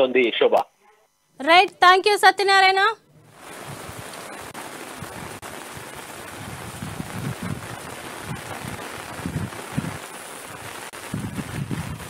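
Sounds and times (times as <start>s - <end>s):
rain falling: 3.3s - 12.0s
wind buffeting microphone: 3.4s - 12.0s.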